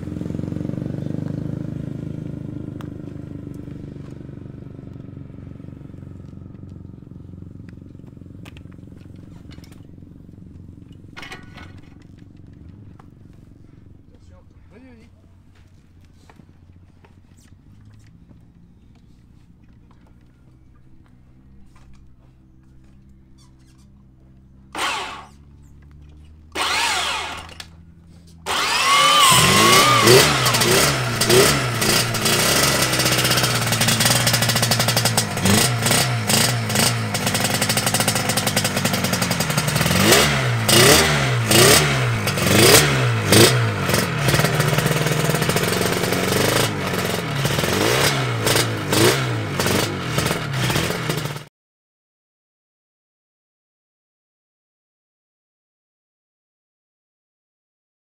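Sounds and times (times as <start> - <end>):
two-stroke racing engine revving: 0.0 - 10.2, 22.6 - 51.5.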